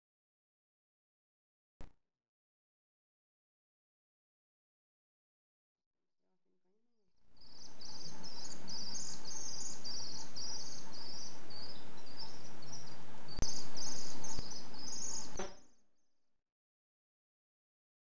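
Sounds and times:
shrill high-pitched chirping: 7.4 - 15.6
steady hiss: 7.6 - 15.5.

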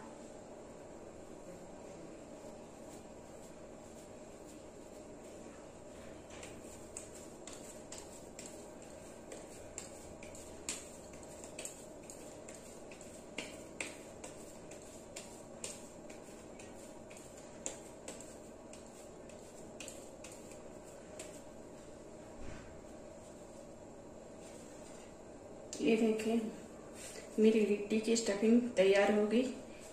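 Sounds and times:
wet palms rolling dough: 1.2 - 25.2.

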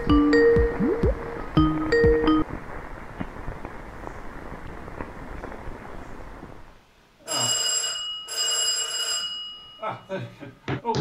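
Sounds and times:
crackling with sharp pops: 2.4 - 6.9.

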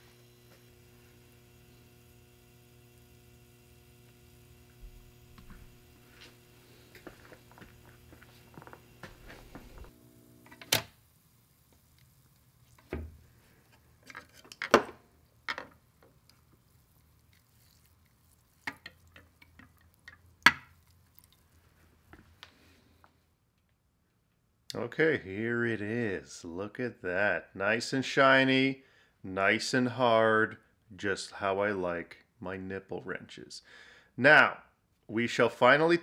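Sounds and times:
electrical hum: 0.0 - 13.8.

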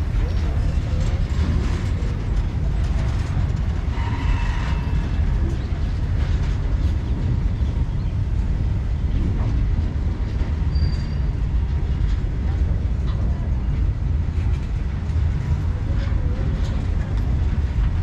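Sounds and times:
freight wagons rumbling on rails: 0.0 - 18.0
faint wheel squeal: 3.9 - 5.7, 10.7 - 11.4.

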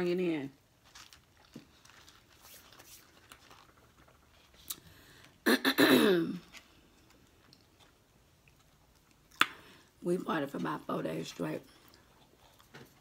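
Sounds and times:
chewing clicks and crackles: 0.8 - 2.4, 6.5 - 9.6.

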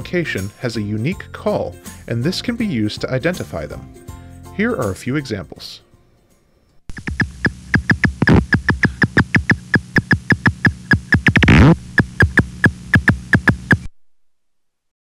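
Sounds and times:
bat echolocation clicks: 6.9 - 13.9.

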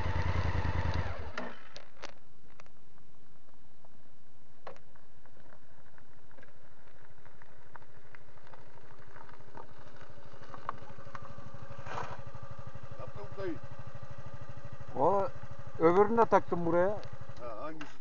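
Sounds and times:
motorcycle engine idling: 0.0 - 1.7, 7.7 - 18.0.

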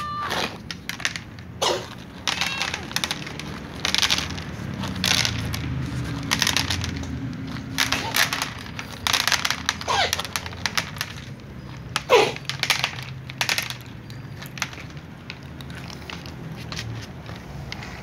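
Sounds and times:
cat meowing: 0.0 - 0.5, 2.3 - 2.9
cats crunching dry kibble: 0.0 - 18.0.

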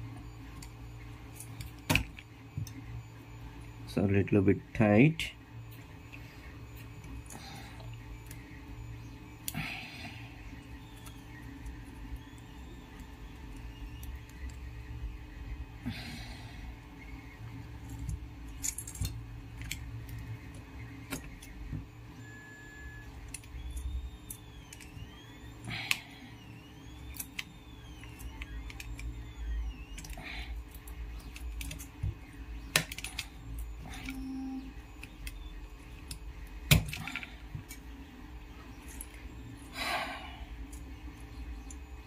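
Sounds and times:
clicks of electronic parts: 27.0 - 37.8.

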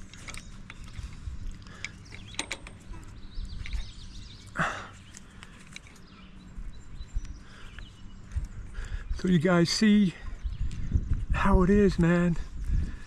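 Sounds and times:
metal hardware clicking and clinking: 0.0 - 4.0
wind rumble on microphone: 0.0 - 4.5, 6.1 - 13.0.

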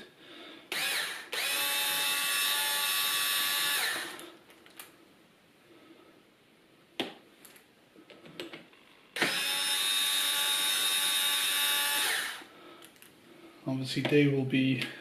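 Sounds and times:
power drill spinning: 0.7 - 4.4, 9.2 - 12.5.

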